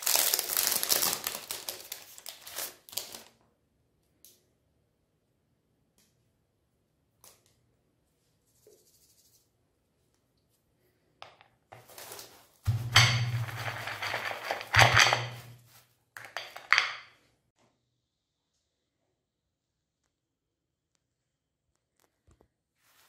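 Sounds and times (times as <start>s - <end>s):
rustling and clinking handling: 11.9s - 17.2s.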